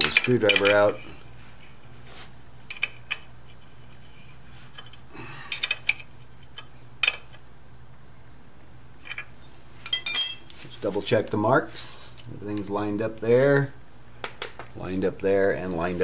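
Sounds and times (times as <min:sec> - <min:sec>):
hand tools clinking on metal: 0:00.0 - 0:00.9, 0:09.8 - 0:10.9
low steady hum: 0:00.0 - 0:16.0.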